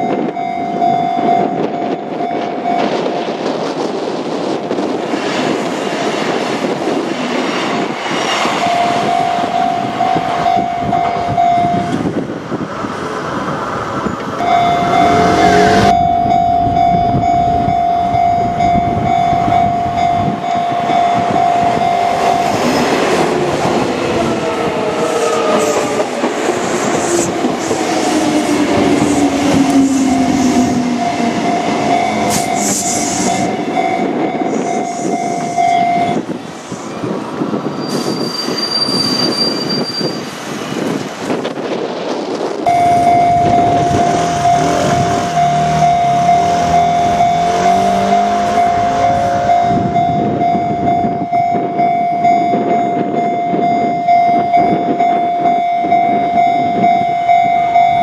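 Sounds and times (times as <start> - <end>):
crossing warning bell: 0.0 - 5.0, 7.8 - 12.3, 14.0 - 37.2, 42.7 - 58.0
train wheels rumbling and clattering: 0.0 - 58.0
train motor whine: 14.3 - 18.2, 19.0 - 36.6.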